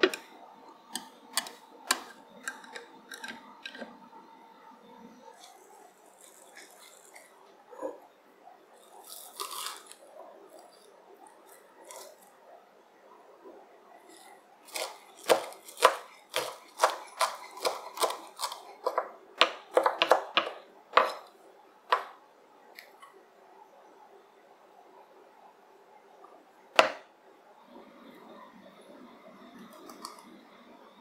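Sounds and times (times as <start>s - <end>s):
soft rustling of onions: 5.2s - 7.6s
knife chopping on wooden board: 14.7s - 21.2s.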